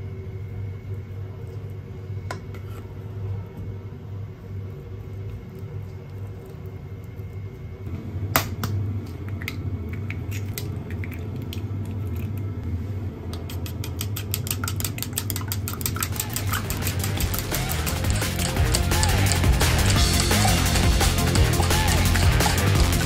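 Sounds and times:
whisk clicking against wooden bowl: 13.4s - 23.0s
low hum: 16.0s - 23.0s.

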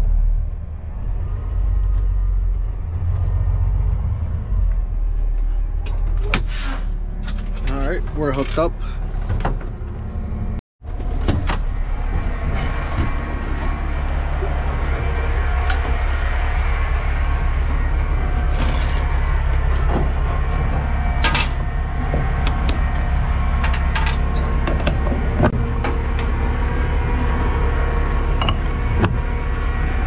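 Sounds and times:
diesel truck engine idling: 7.8s - 30.0s.

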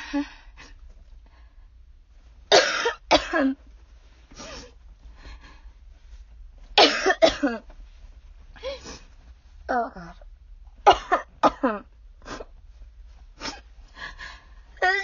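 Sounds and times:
woman coughing harshly: 2.5s - 3.6s, 6.8s - 7.6s, 10.8s - 12.5s.

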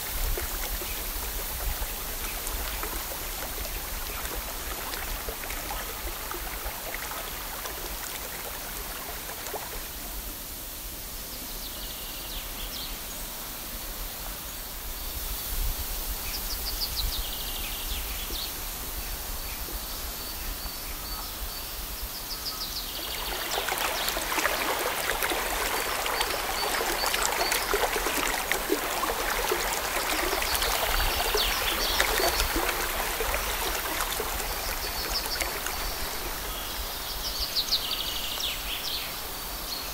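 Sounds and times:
running water splashing: 0.0s - 10.4s, 22.9s - 38.8s.

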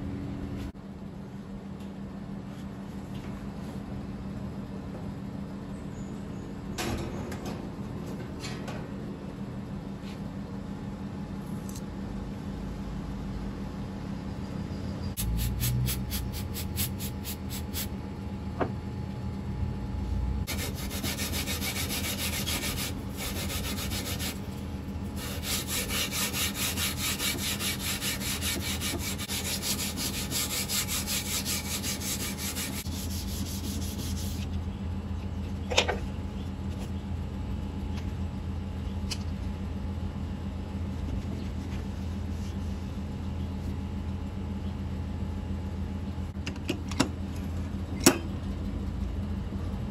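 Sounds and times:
sandpaper rubbing steel blade: 15.2s - 17.9s, 20.5s - 24.5s, 25.2s - 34.5s.

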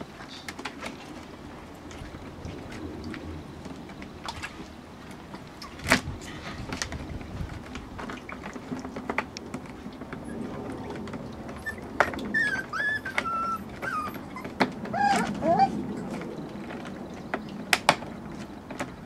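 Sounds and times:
paws clicking on plastic: 6.7s - 19.0s
puppy whimpering: 11.5s - 16.3s.

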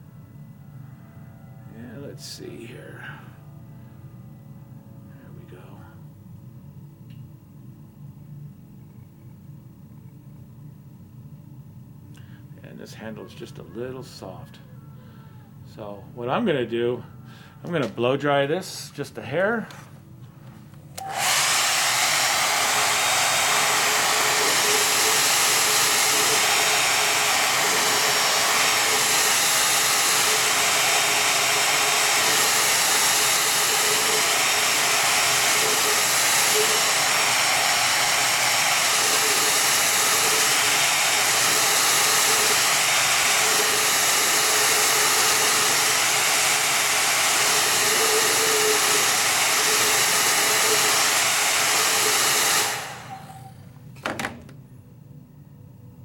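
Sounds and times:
hair dryer running: 19.7s - 54.6s.

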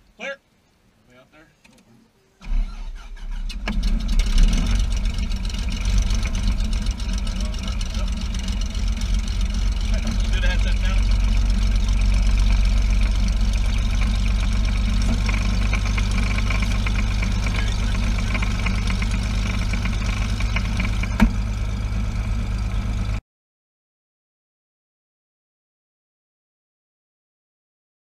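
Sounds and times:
plane engine and propeller idling: 2.4s - 23.2s.

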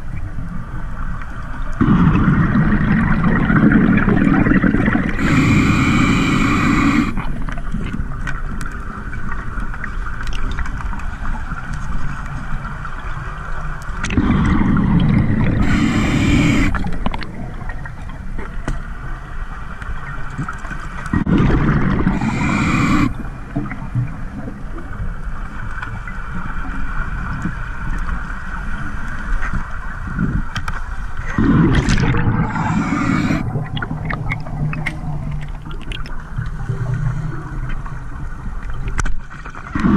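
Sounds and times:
exhaled bubbles gurgling: 1.6s - 11.6s, 13.9s - 18.6s, 21.0s - 25.6s, 31.1s - 39.9s
regulator hiss: 5.1s - 7.2s, 15.1s - 16.9s, 22.1s - 23.2s, 32.4s - 33.5s.

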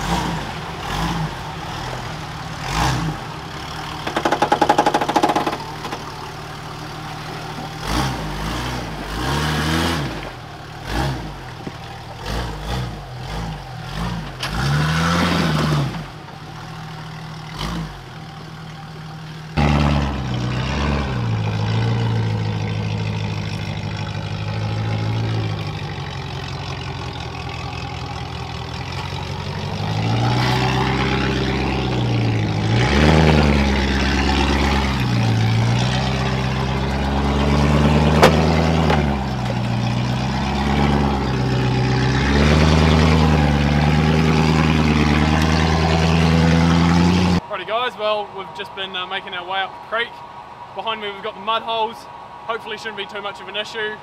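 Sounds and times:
off-road engines revving: 0.0s - 54.0s
tyres and chassis knocking on rock: 4.0s - 6.1s.

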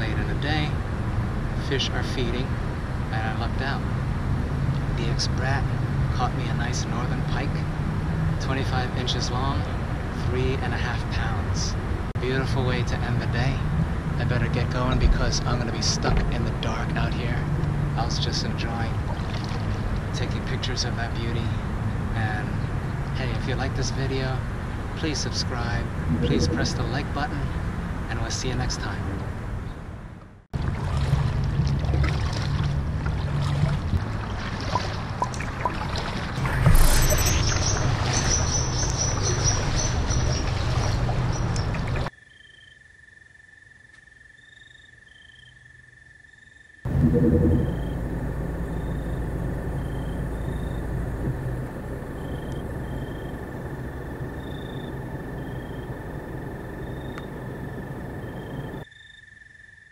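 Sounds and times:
steady low hiss: 0.0s - 19.1s, 19.9s - 29.3s
low steady rumble: 0.0s - 30.0s, 46.9s - 58.8s
paddle splashing water: 19.0s - 20.1s, 30.6s - 42.1s
insect chirp: 36.4s - 40.4s, 42.1s - 46.9s, 47.6s - 59.9s
insect high trill: 52.0s - 59.9s.

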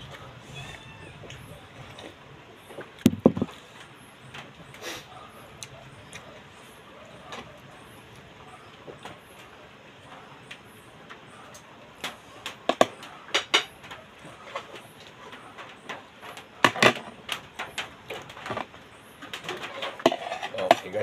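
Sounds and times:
dishes and utensils clinking: 19.5s - 21.0s.

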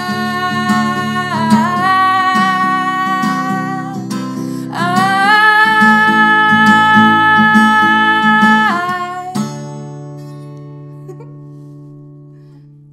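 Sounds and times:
woman singing: 0.0s - 9.6s
strummed acoustic guitar: 0.0s - 12.5s.

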